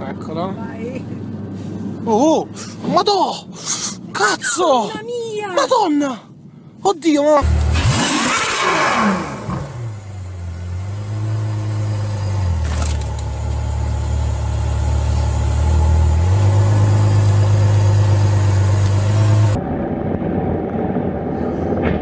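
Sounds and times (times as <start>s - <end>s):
car engine at low revs: 7.4s - 22.0s.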